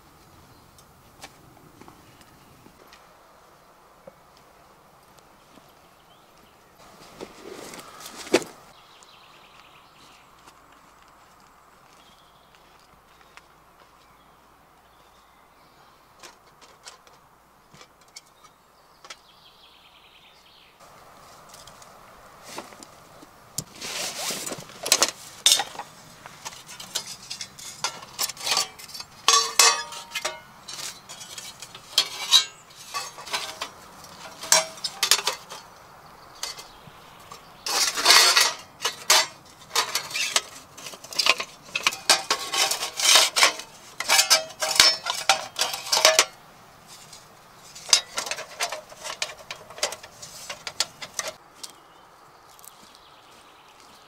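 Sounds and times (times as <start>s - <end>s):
metal knocks and scrapes: 23.6s - 35.8s, 36.4s - 51.4s
steel plates clinking and clattering: 24.8s - 35.7s, 36.4s - 51.4s.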